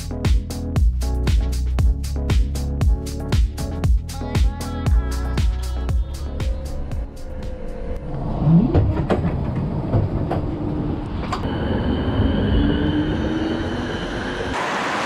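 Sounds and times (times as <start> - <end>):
tram wheels rumbling on rails: 6.1 - 15.0
tram clanks: 8.6 - 12.2.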